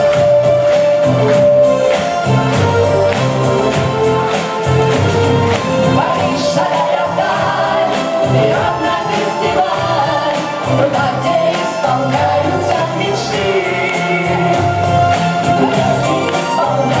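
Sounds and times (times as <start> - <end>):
backing track: 0.0 - 17.0
person singing pop song live: 3.7 - 17.0.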